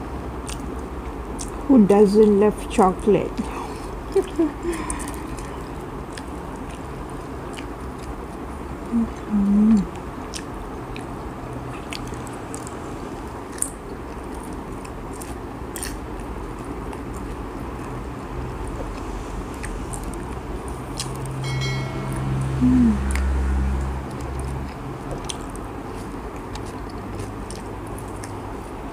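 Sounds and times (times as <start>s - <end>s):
chewing crispy food: 0.3s - 1.7s, 3.4s - 21.4s, 23.1s - 28.9s
short hum: 21.4s - 24.0s.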